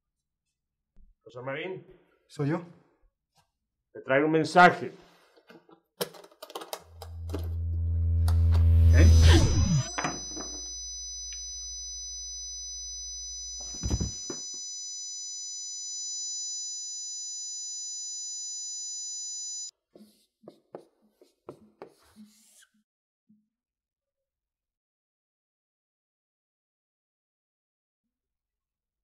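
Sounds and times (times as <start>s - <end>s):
low hum: 6.8s - 14.2s
high-pitched ringing tones: 6.9s - 19.7s
marker writing on whiteboard: 19.9s - 22.6s.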